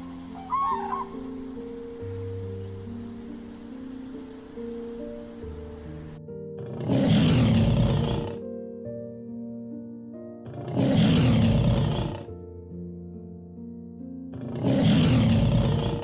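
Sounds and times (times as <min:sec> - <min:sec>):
background music of held notes: 0:00.0 - 0:16.0
big cat roaring: 0:06.6 - 0:08.4, 0:10.5 - 0:12.3, 0:14.3 - 0:16.0.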